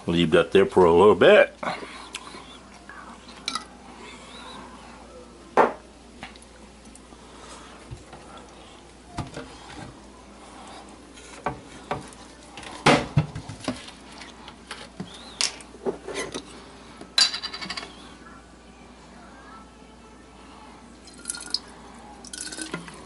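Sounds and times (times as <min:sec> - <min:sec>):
kitchen items knocking and clinking: 0:11.4 - 0:14.0.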